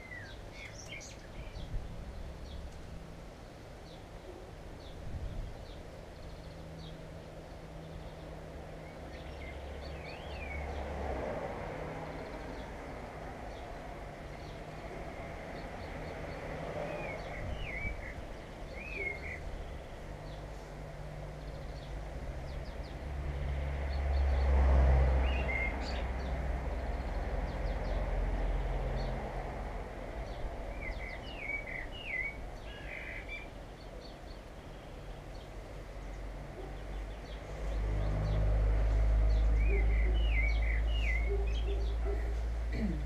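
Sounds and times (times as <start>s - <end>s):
small birds chirping: 0.0s - 10.9s, 11.9s - 24.5s, 30.2s - 43.0s
traffic engine rumble: 33.5s - 43.0s.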